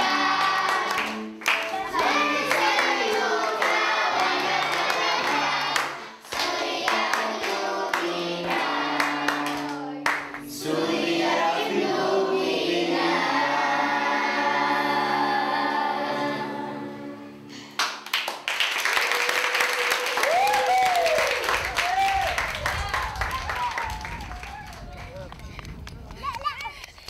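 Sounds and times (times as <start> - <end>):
children clapping: 0.0 - 10.5, 17.8 - 27.0
children singing: 0.0 - 17.4.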